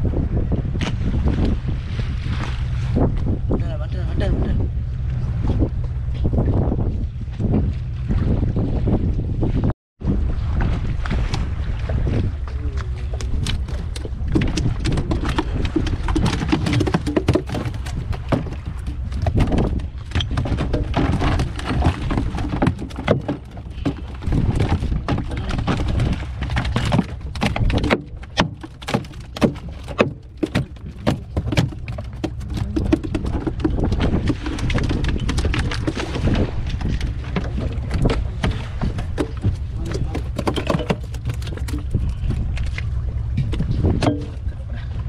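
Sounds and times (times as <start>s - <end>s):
wind and sea: 0.0s - 45.0s
fish slapping on wooden deck: 13.2s - 42.7s.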